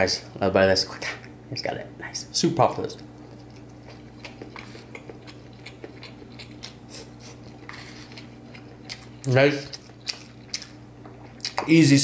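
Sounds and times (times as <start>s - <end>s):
steady low hum: 0.0s - 12.0s
man chewing with wet smacks: 2.9s - 11.8s.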